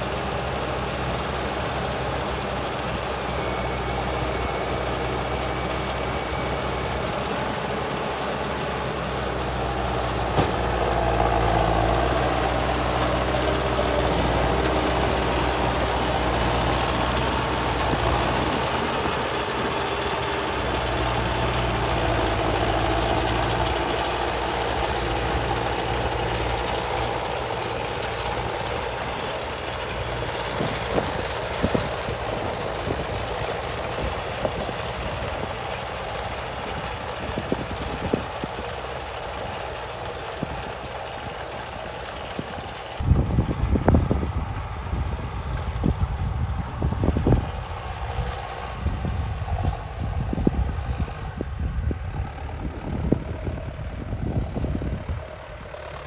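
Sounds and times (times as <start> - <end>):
tractor diesel engine under load: 0.0 - 56.0
wind buffeting microphone: 30.3 - 38.8, 42.4 - 55.9.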